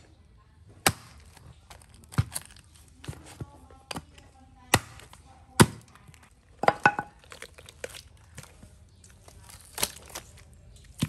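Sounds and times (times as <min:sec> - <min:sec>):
meat tearing and crinkling: 0:01.2 - 0:03.1, 0:07.2 - 0:11.0
knocks on wooden chopping block: 0:06.6 - 0:07.1.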